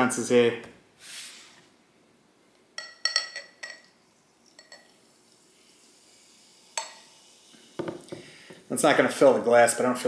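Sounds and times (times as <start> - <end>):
glass clinking: 2.8 - 5.1, 6.7 - 7.2
drink pouring into a glass: 3.5 - 8.4.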